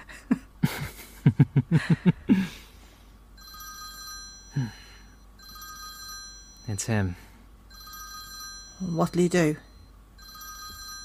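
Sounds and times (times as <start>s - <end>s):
phone ringing: 3.4s - 11.0s
person's voice: 8.8s - 9.7s.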